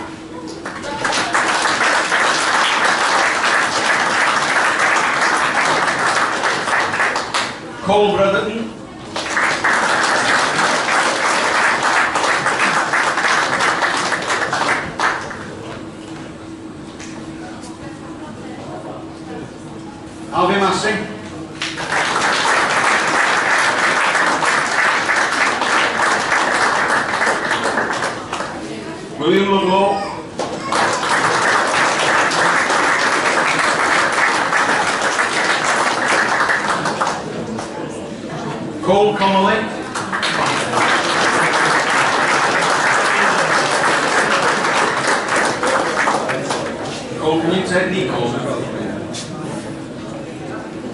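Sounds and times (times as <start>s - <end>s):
people applauding: 0.0s - 7.7s, 9.0s - 15.8s, 21.6s - 28.9s, 30.0s - 38.1s, 39.7s - 47.7s
people clapping: 0.0s - 7.7s, 9.0s - 16.3s, 21.6s - 29.0s, 30.0s - 38.5s, 39.2s - 47.2s.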